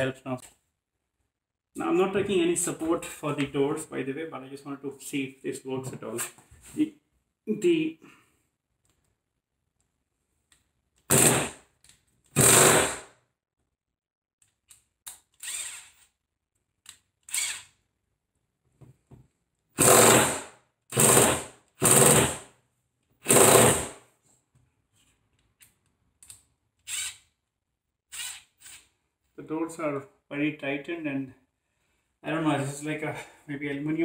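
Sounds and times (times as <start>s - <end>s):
cordless drill short bursts: 11.1s - 11.6s, 12.4s - 13.0s, 15.4s - 15.9s, 17.3s - 17.7s, 19.8s - 22.4s, 23.2s - 23.9s, 26.9s - 27.2s, 28.1s - 28.8s.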